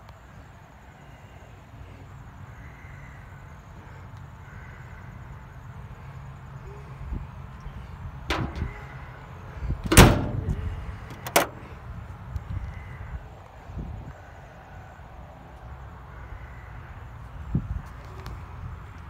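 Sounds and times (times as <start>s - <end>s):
car trunk lid thud: 8.3s - 8.9s, 9.8s - 11.6s.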